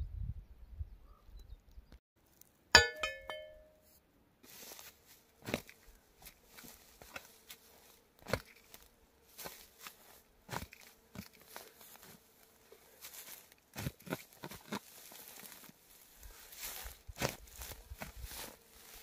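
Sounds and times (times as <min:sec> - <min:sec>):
footsteps on dry grass: 0:04.4 - 0:19.0
spade crunching into turf: 0:04.5 - 0:12.3, 0:13.0 - 0:15.8, 0:16.5 - 0:19.0.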